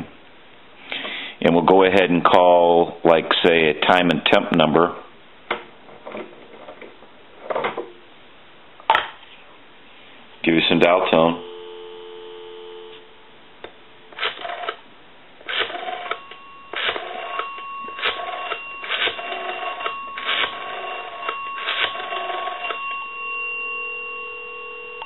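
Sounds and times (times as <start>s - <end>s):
ringback tone: 11.1s - 14.8s, 15.5s - 25.0s
phone bell tinkling: 11.4s - 13.2s, 15.5s - 25.0s
telephone dial tone: 11.4s - 13.2s, 14.1s - 14.8s, 15.4s - 25.0s
rotary dial pulses: 14.2s - 14.8s, 15.5s - 23.4s.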